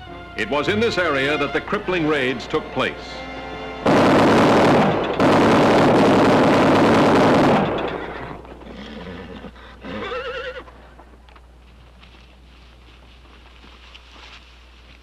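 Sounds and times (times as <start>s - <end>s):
gatling gun firing rapid bursts: 3.9s - 7.9s.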